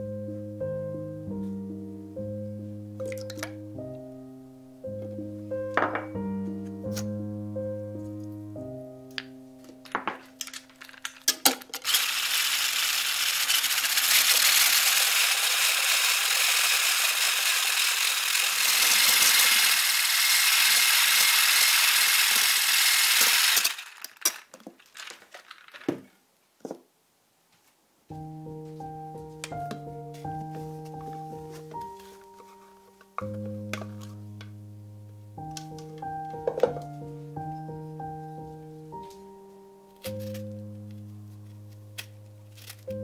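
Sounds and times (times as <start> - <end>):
hand blender whisking: 11.3 - 25.2.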